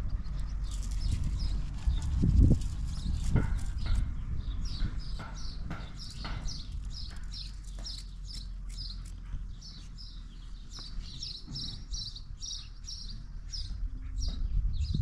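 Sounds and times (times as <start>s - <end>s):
low steady rumble: 0.0s - 15.0s
small bird chirping: 0.0s - 15.0s.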